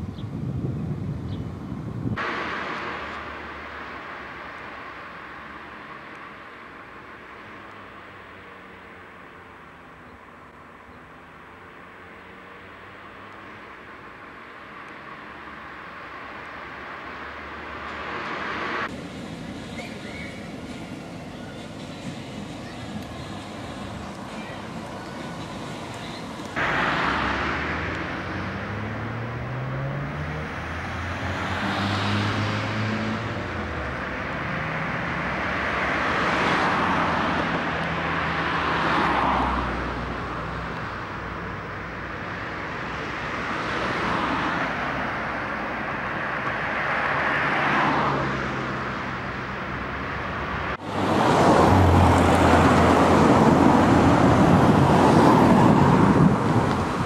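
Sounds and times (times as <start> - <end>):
cars passing on a road: 0.0 - 57.0
car passing close by: 2.2 - 9.1, 14.6 - 19.0, 26.5 - 41.6, 42.2 - 57.0.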